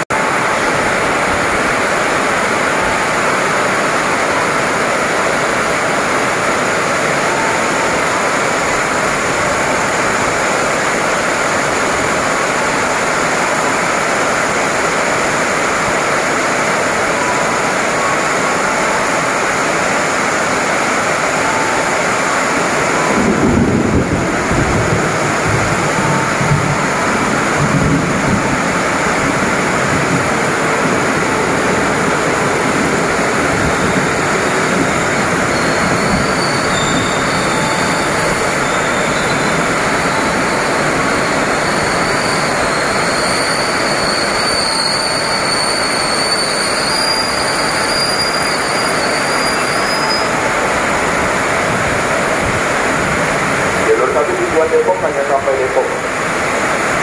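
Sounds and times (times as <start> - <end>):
heavy rain hiss: 0.1 - 57.0
electric train running in: 0.2 - 57.0
high-pitched wheel squeal: 34.4 - 50.4.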